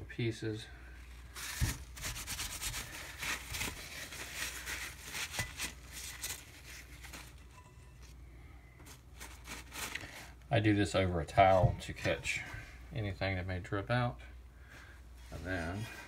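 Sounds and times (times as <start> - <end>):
paper towel crumpling and rubbing: 1.1 - 8.1, 8.8 - 10.3.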